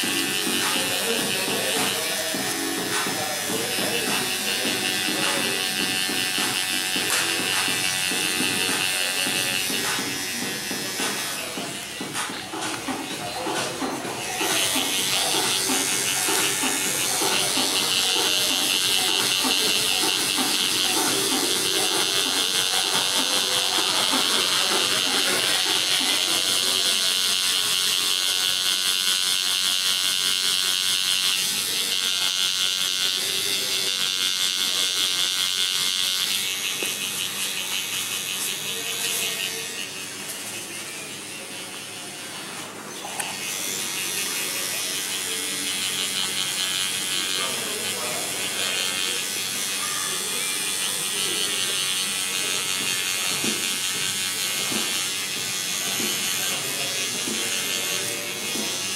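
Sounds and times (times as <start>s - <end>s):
tattoo machine buzzing: 0.0s - 58.9s.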